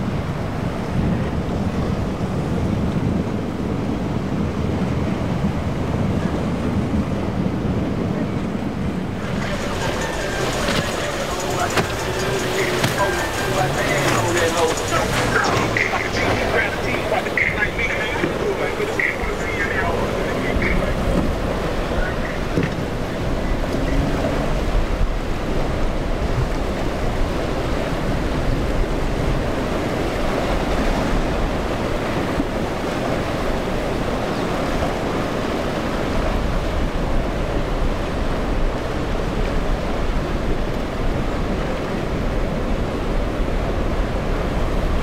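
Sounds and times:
ocean surf and breaking waves: 0:00.0 - 0:45.0
wind buffeting microphone: 0:00.0 - 0:45.0.

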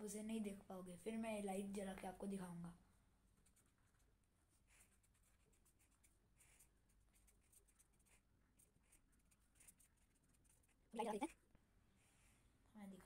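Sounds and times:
pen scratching on paper: 0:03.3 - 0:11.4.

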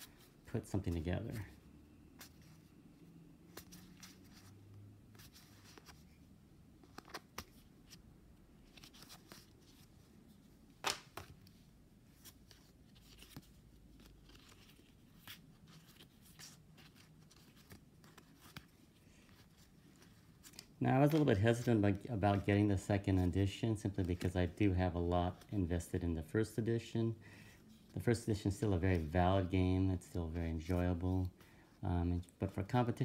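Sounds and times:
cards clicking and rustling: 0:05.2 - 0:08.0, 0:08.6 - 0:09.9, 0:10.8 - 0:11.6, 0:12.2 - 0:23.2.

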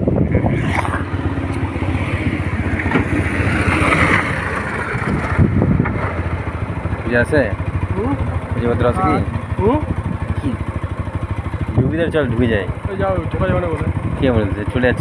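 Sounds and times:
motorcycle engine idling: 0:00.0 - 0:15.0
backhoe loader driving past: 0:00.2 - 0:06.8.

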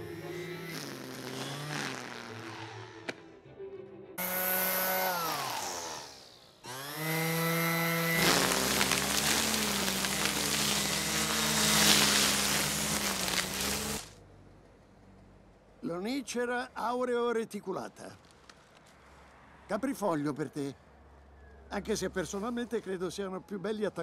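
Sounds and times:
trimmer cutting dense weeds: 0:00.0 - 0:03.1, 0:04.2 - 0:14.2
string trimmer motor whine: 0:00.0 - 0:03.2, 0:04.2 - 0:14.1.

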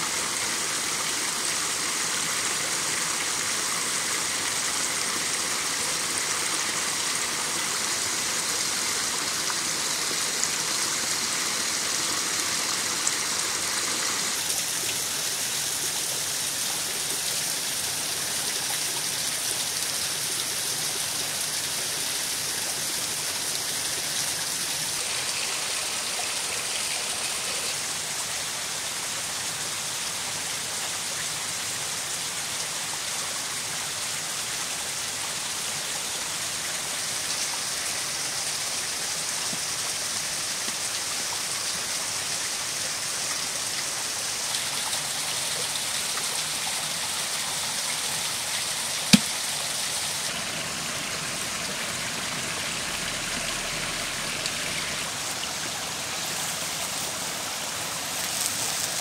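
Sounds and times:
small waterfall splashing: 0:00.0 - 0:59.0.

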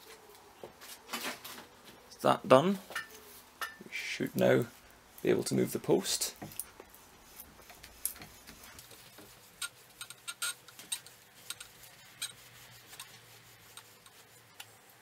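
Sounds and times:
metal clicks and scrapes: 0:07.4 - 0:14.8.

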